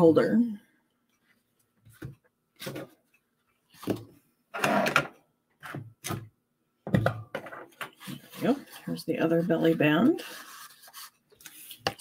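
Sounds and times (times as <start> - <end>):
card objects knocking and rustling: 1.9 - 3.0, 3.8 - 4.2, 4.8 - 8.4.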